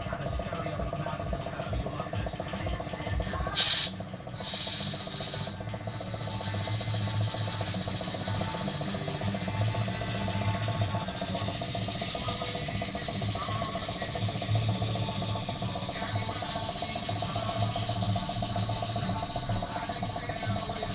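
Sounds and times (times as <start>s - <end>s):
steam engine exhaust hiss beating: 0.0s - 20.9s
sharp air hiss blast: 3.6s - 6.7s.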